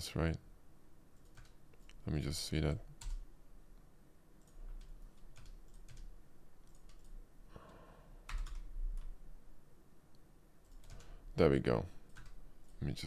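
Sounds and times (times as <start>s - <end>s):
faint keyboard keystrokes: 10.6s - 11.1s.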